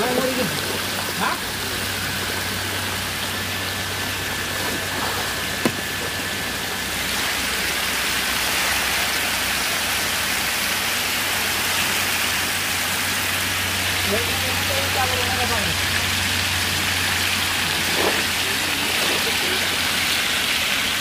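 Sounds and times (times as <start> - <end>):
fish splashing in water: 0.0 - 14.0, 15.7 - 21.0
low steady hum: 0.0 - 21.0
water spraying from pipes: 0.0 - 21.0.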